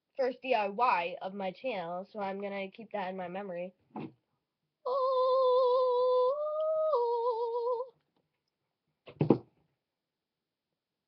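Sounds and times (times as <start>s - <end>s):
person humming: 4.9s - 7.9s.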